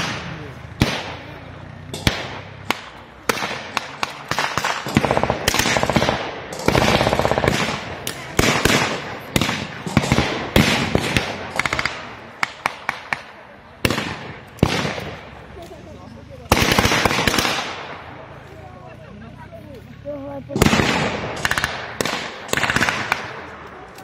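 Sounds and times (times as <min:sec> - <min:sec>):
single rifle shots: 0:00.0 - 0:15.4, 0:16.5 - 0:18.2, 0:20.6 - 0:23.6
automatic gunfire bursts: 0:02.0 - 0:13.2, 0:16.5 - 0:17.9, 0:20.6 - 0:23.5.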